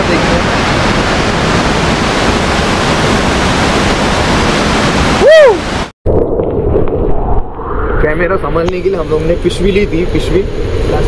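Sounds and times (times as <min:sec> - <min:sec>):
waterfall roaring: 0:00.0 - 0:05.9.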